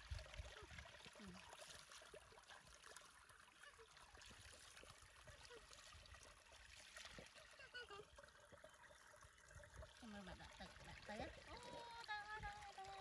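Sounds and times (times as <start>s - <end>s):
shallow water splashing: 0.0s - 13.0s.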